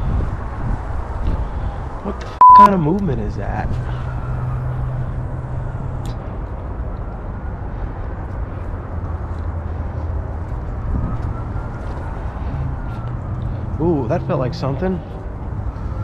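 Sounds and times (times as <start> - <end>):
wind on microphone: 0.0 - 2.0, 10.6 - 13.4
distant city traffic: 0.0 - 16.0.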